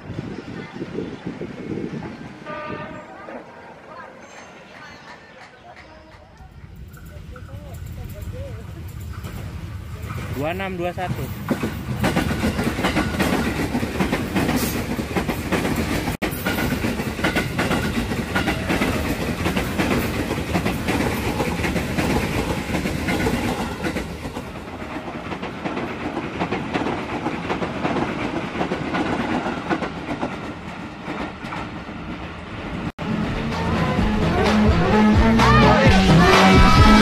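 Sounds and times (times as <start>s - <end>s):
train rumble: 0.0s - 37.0s
wheels clacking over rail joints: 4.2s - 32.4s.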